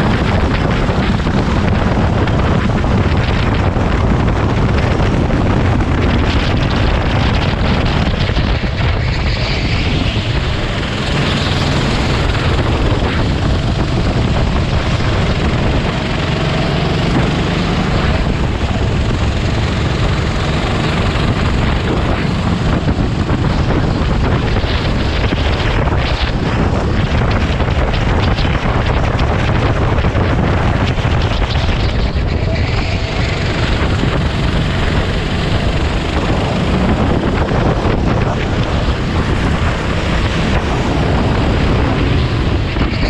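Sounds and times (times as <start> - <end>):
kart engine running: 0.0 - 43.0.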